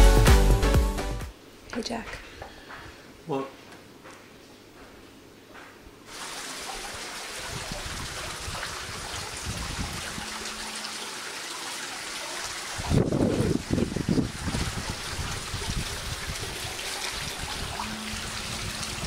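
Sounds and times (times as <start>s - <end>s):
wind buffeting microphone: 7.4s - 10.4s, 12.7s - 19.0s
wind rushing: 12.8s - 19.0s.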